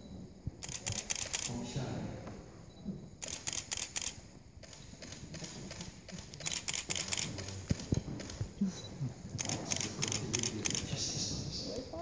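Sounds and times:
camera shutters clicking: 0.6s - 1.6s, 3.2s - 8.5s, 9.4s - 11.0s.

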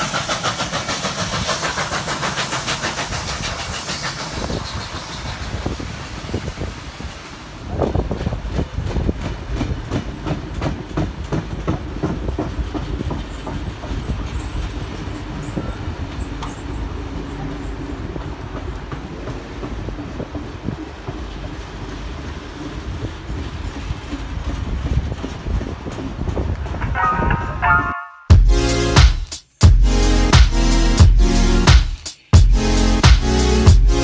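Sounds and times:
train carriages rumbling past: 0.0s - 29.0s
wheels clicking over rail joints: 7.8s - 26.9s.

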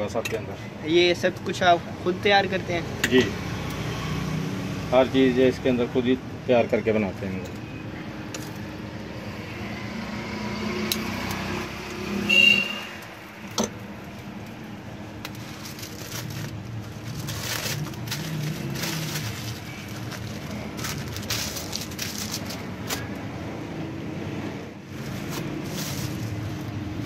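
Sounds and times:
street traffic rumble: 0.0s - 27.0s
plastic wrapping crinkling: 14.0s - 23.2s, 24.9s - 27.0s.

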